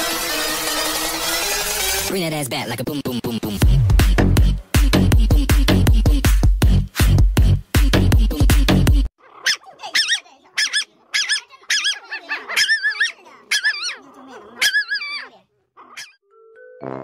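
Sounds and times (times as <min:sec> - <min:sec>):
puppy howling: 0:09.2 - 0:16.2.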